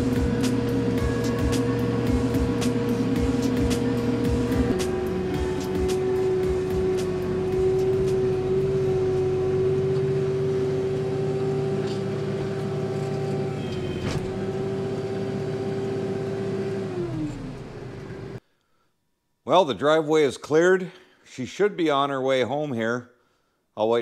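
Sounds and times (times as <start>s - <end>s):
tractor diesel engine running: 0.0s - 18.4s.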